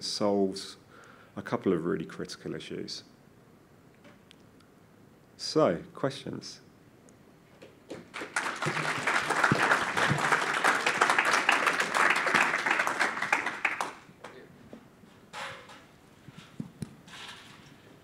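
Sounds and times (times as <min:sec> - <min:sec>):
audience applauding: 0:07.9 - 0:14.1.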